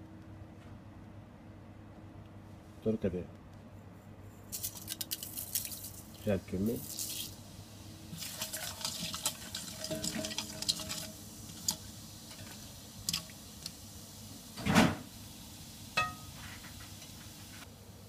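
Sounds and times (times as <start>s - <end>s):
spices crackling in oil: 4.5s - 14.4s
spoon knocking on pan: 16.0s - 16.3s.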